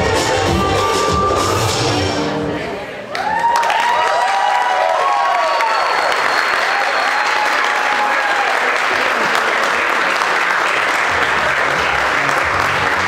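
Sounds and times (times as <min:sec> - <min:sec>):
dance music: 0:00.0 - 0:02.9, 0:11.1 - 0:13.0
audience applauding: 0:03.1 - 0:13.0.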